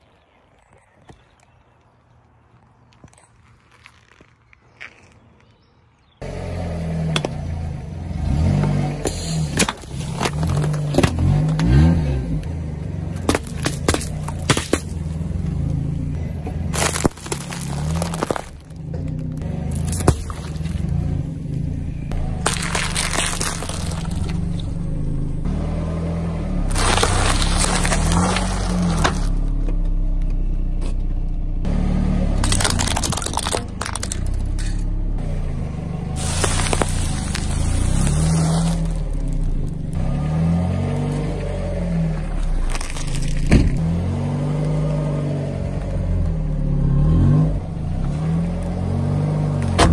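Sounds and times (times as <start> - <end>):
car engine running: 6.2 - 49.9
tyre crushing objects: 9.5 - 12.0, 13.1 - 15.5, 16.6 - 21.0, 22.2 - 24.7, 26.7 - 29.5, 32.4 - 34.5, 36.2 - 40.0, 42.2 - 43.9.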